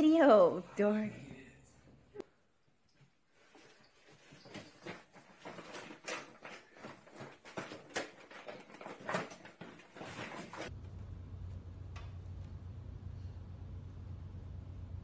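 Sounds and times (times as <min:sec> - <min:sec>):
steady low hum: 0:10.7 - 0:15.0.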